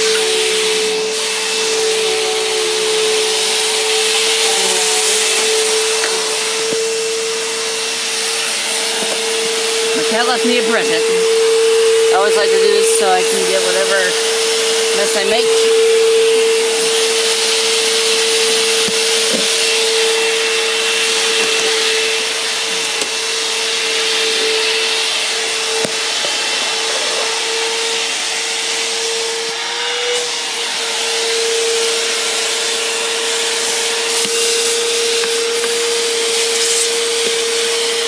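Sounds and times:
vacuum cleaner running on carpet: 0.0s - 38.0s.

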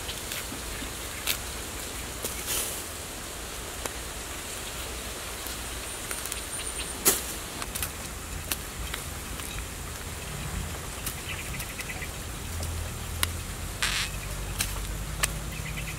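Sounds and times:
faint outdoor hiss: 0.0s - 15.9s
dry plant material crackling and snapping: 1.2s - 1.4s, 4.8s - 15.9s.

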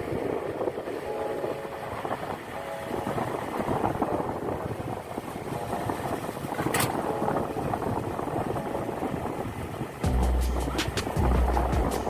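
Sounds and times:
wind noise: 0.0s - 12.0s
music with heavy bass beat: 10.0s - 12.0s.

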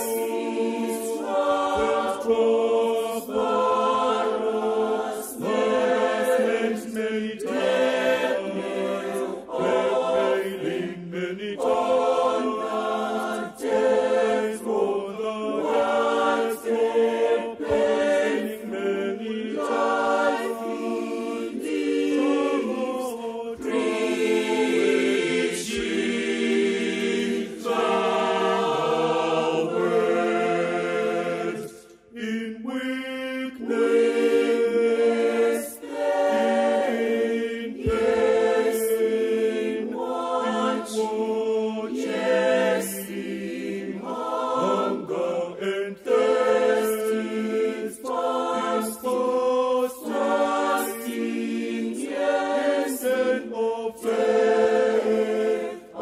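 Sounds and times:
choir singing in harmony: 0.0s - 56.0s.

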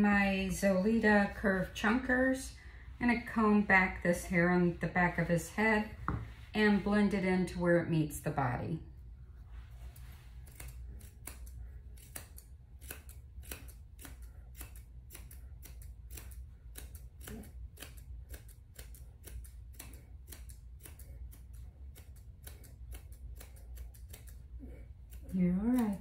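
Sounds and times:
shears snipping through dog hair: 0.0s - 6.0s, 9.7s - 26.0s.

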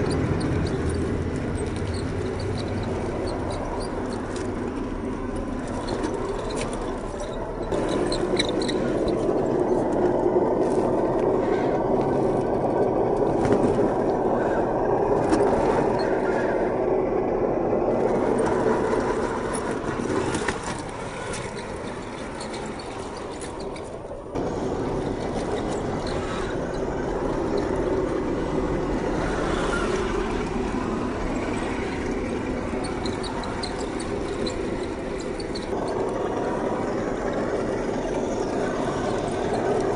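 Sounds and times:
toy truck electric motor whining: 18.0s - 30.6s.

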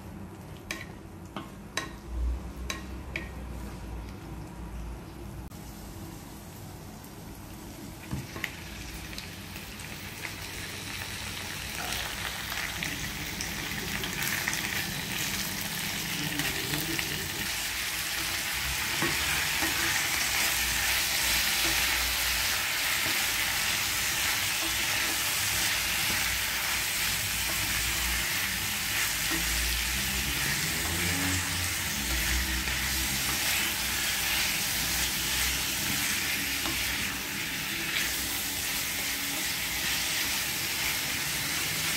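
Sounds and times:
meat sizzling in a pan: 8.1s - 41.9s.

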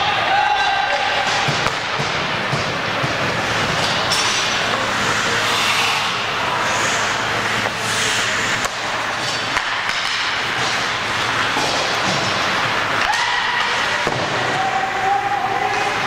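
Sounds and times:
arena rink noise: 0.0s - 16.0s
sharp knocks from hockey play: 8.6s - 10.8s.

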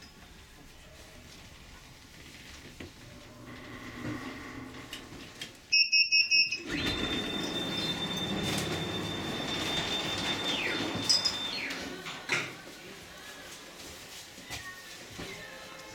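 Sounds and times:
door warning beeps: 5.7s - 12.0s
funicular car rumbling: 6.6s - 12.2s.

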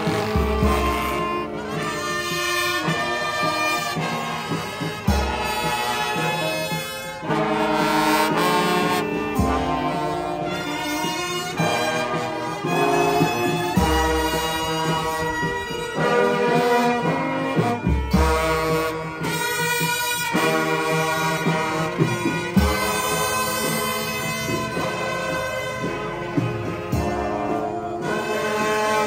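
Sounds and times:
marching brass band playing: 0.0s - 29.0s.

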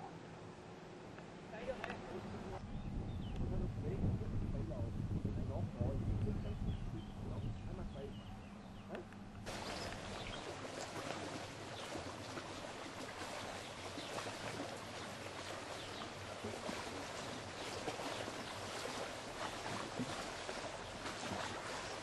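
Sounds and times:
small waves lapping: 7.0s - 22.0s.

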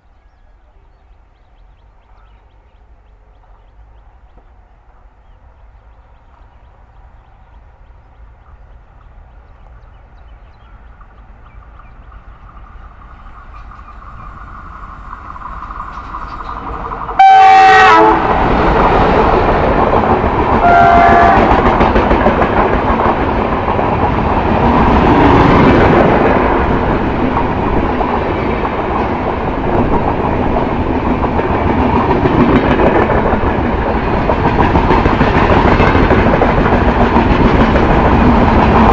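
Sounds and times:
diesel locomotive engine: 0.0s - 38.9s
train wheels clacking on rails: 8.4s - 38.9s
locomotive horn blast: 16.8s - 18.4s, 20.6s - 21.6s.

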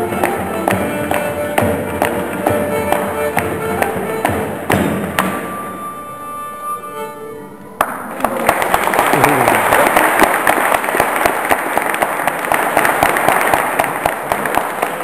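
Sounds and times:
music: 0.0s - 9.0s
audience applause: 7.8s - 15.0s.

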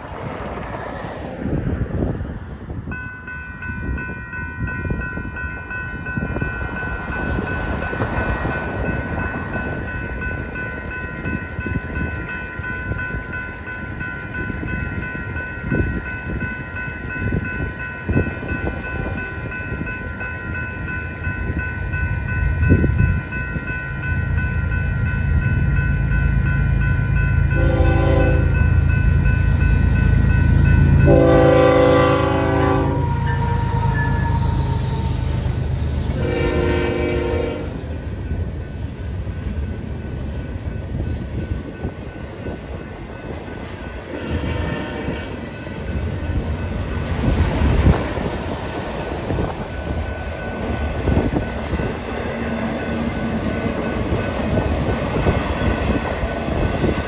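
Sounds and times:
diesel train rumble: 0.0s - 57.0s
railroad crossing bell ringing: 1.1s - 57.0s
train air horn: 27.6s - 28.6s, 31.0s - 35.5s, 36.1s - 37.8s, 44.1s - 45.4s.

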